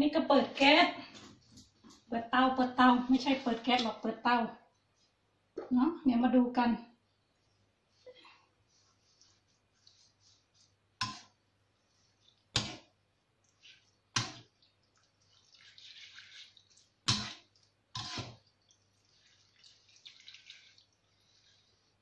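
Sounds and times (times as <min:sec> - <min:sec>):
chicken scraping and rustling in oil: 0:08.0 - 0:12.9, 0:13.5 - 0:22.0.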